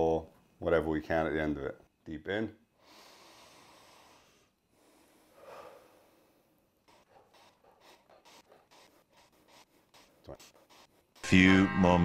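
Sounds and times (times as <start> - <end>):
deep breathing: 2.8 - 6.6
quick short breaths: 2.8 - 6.6.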